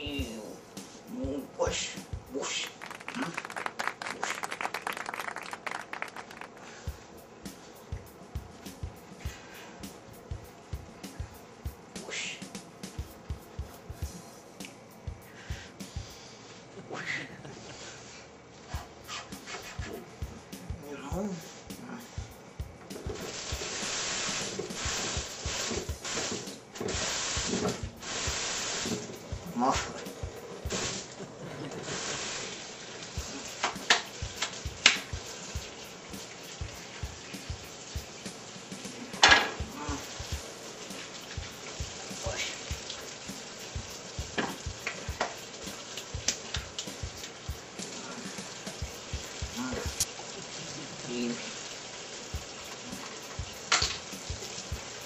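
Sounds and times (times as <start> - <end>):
hands washing under water: 18.7 - 55.0
faucet running into metal sink: 31.7 - 55.0.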